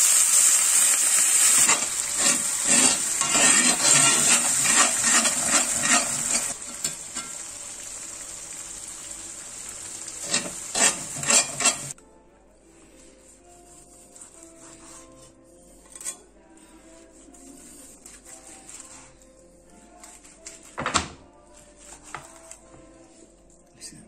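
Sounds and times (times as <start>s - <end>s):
cream sizzling in hot fat: 0.0s - 12.0s
spoon scraping pan: 1.4s - 7.5s, 10.2s - 12.0s.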